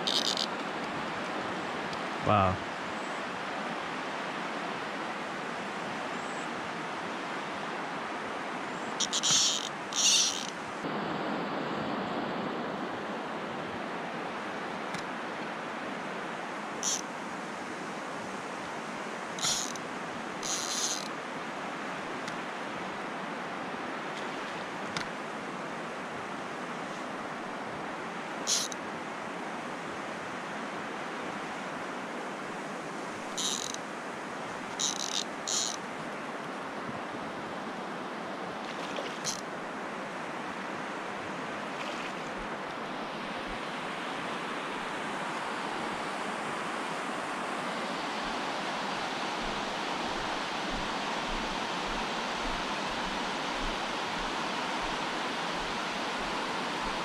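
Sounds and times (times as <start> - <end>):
fishing reel zipping: 0.0 - 0.6, 9.0 - 10.6, 19.4 - 19.8, 20.4 - 21.1, 28.5 - 28.8, 33.4 - 33.8, 34.8 - 35.8.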